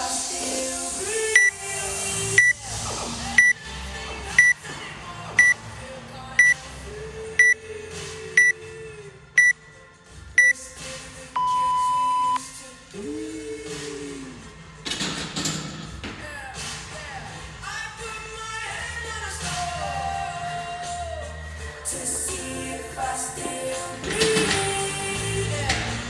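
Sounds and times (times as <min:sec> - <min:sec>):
longer lower beep: 0:01.4 - 0:01.6, 0:10.4 - 0:10.6, 0:11.4 - 0:12.4
short high beeps: 0:10.4 - 0:10.6, 0:11.4 - 0:12.4.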